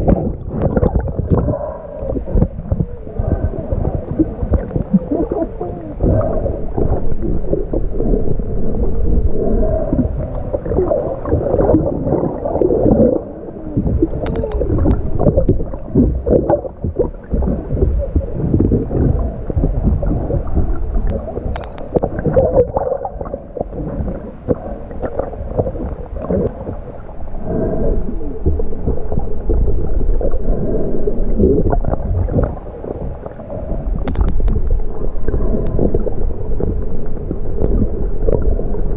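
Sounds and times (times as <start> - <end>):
crackles and splashes: 0.0 - 38.9
muffled underwater water sloshing: 0.0 - 38.9.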